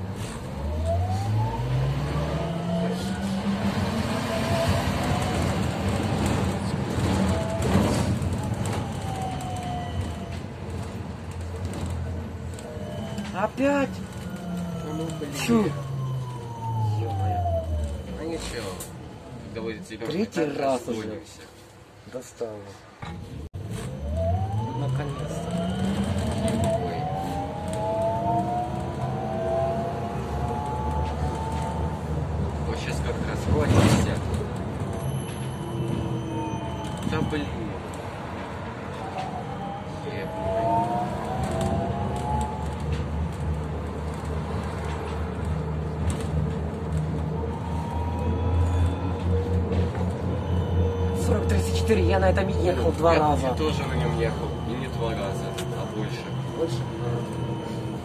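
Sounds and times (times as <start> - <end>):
road and cabin rumble: 40.5 - 58.0.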